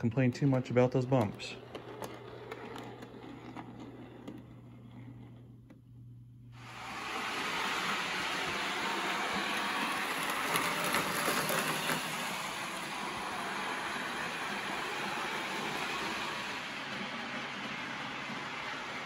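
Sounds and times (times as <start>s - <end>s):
model train motor whir: 6.6s - 19.0s.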